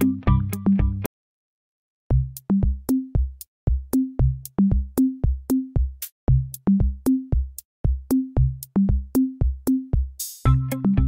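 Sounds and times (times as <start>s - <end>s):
short bass notes: 0.0s - 1.1s, 10.5s - 11.0s
drum machine beat: 2.1s - 11.0s.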